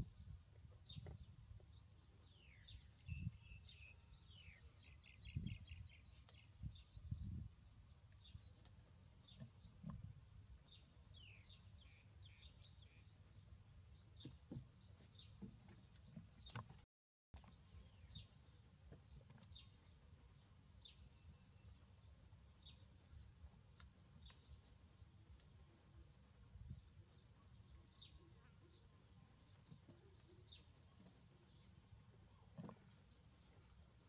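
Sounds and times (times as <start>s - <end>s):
faint bird chirps: 20.7s - 33.9s.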